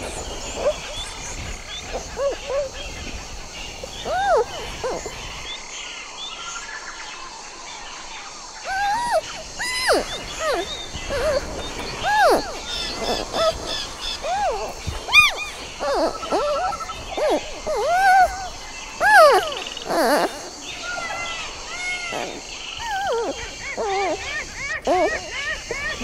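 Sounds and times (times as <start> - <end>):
panda chirping: 8.7 - 20.5
high bird chirps: 8.7 - 26.0.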